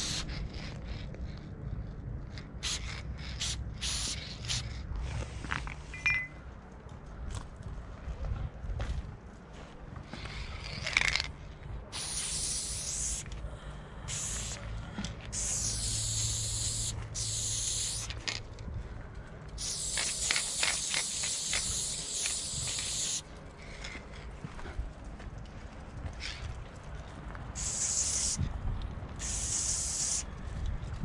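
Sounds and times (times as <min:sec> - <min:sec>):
spray-paint can hissing: 0:00.0 - 0:00.3, 0:02.6 - 0:04.7, 0:11.9 - 0:13.3, 0:14.1 - 0:14.6, 0:15.3 - 0:18.2, 0:19.6 - 0:23.2, 0:27.6 - 0:28.4, 0:29.2 - 0:30.3.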